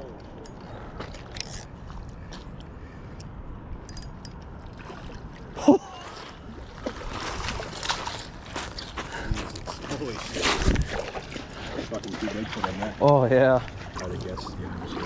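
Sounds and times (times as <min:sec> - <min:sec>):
water splashing and sloshing: 0:03.9 - 0:15.0.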